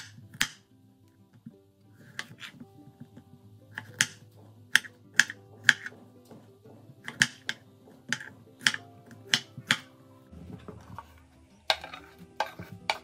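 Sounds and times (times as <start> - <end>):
knife chopping on wooden board: 2.0 - 9.9.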